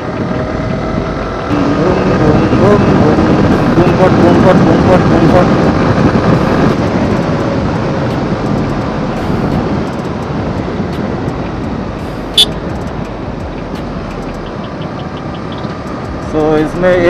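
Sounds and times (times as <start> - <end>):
motorcycle engine decelerating: 0.0 - 17.0
wind rush: 0.0 - 17.0.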